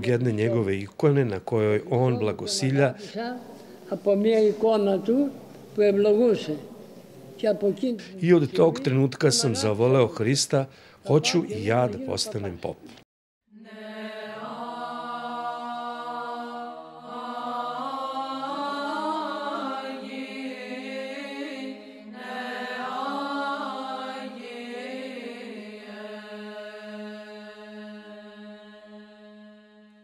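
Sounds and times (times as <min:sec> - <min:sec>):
voices chanting slow melody: 0:13.5 - 0:30.0.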